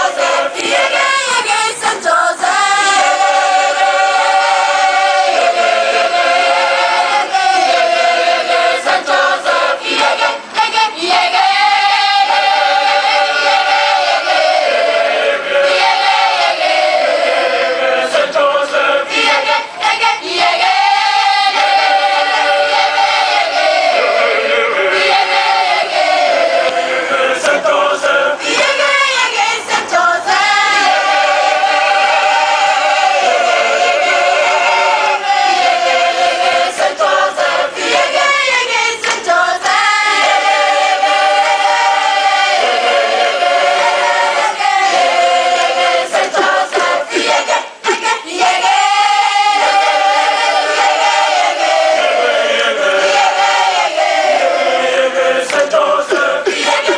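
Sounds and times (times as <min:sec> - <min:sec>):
children's choir singing: 0:00.0 - 0:56.9.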